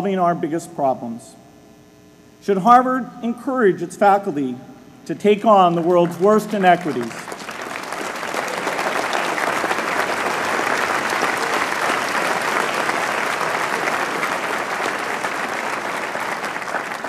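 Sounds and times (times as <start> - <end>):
large audience applauding: 5.7 - 17.0.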